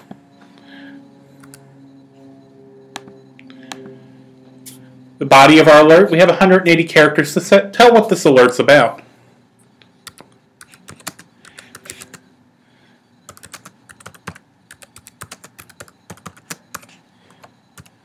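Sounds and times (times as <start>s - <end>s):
keyboard keys clicking: 10.0s - 12.2s, 13.3s - 17.9s.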